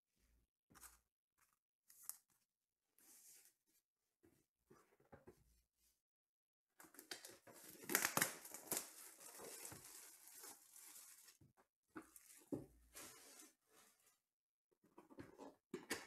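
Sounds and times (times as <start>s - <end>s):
plastic wrap crinkling: 7.2s - 11.4s.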